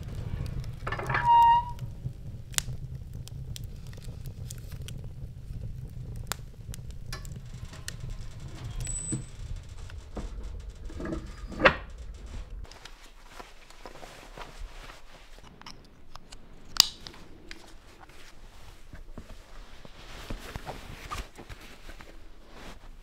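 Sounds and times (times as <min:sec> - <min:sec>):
fire rumbling: 0:00.0 - 0:22.9
wood crackling and popping: 0:00.0 - 0:22.9
squeaking scrape: 0:00.2 - 0:01.9, 0:06.2 - 0:13.4.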